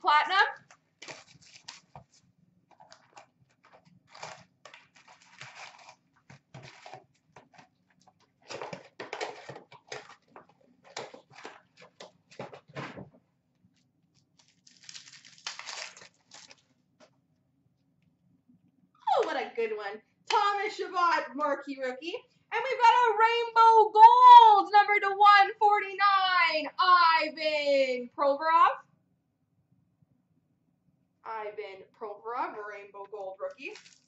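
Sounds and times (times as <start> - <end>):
foil wrappers crinkling: 0.6 - 12.7, 14.2 - 16.7, 33.5 - 34.0.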